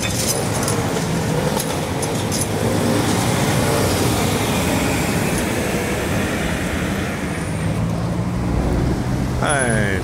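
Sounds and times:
heavy lorry passing: 0.0s - 10.0s
car passing: 0.3s - 10.0s.

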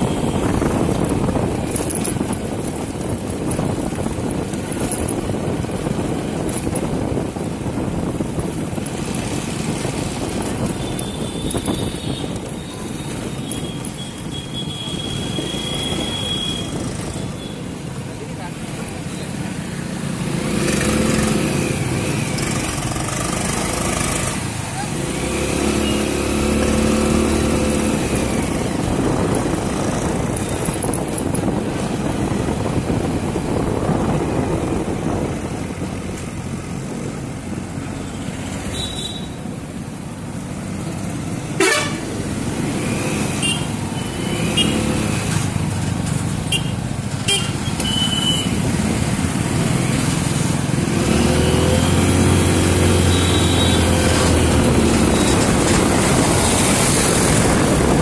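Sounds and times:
traffic engine and wind noise: 0.0s - 58.0s
vehicle horn toots: 41.6s - 42.1s, 46.5s - 48.6s.

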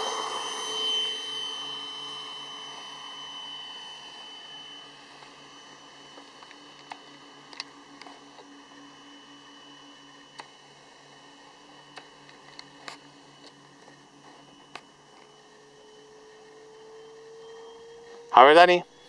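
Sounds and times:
distant electric ducted fan whine: 0.0s - 19.0s.

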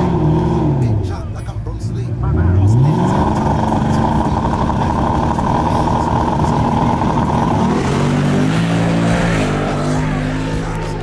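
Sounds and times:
race car engine accelerating: 0.0s - 1.3s, 1.9s - 11.0s.

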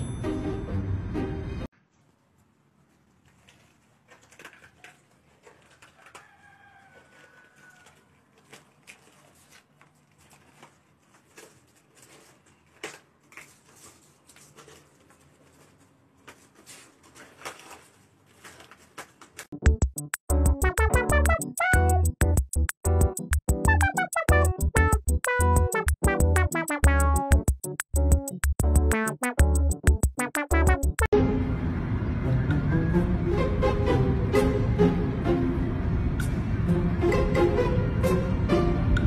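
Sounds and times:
plastic bag crinkling: 2.9s - 19.5s.

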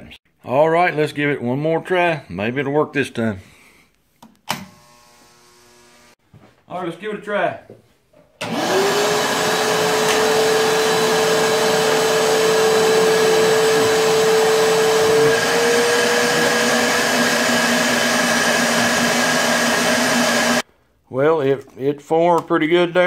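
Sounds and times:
vacuum motor running: 8.4s - 20.6s.

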